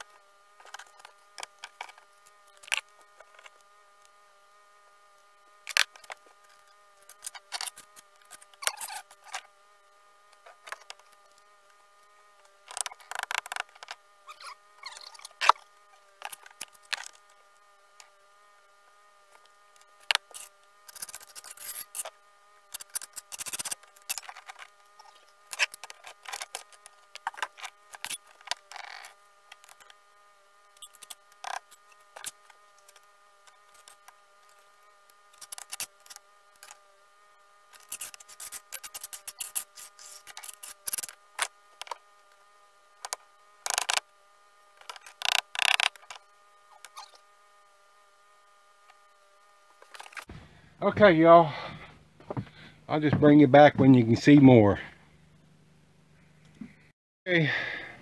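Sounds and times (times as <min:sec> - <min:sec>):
steady faint whine: 0:00.0 - 0:58.0
trowel scraping mortar: 0:20.2 - 0:29.9, 0:37.8 - 0:41.2.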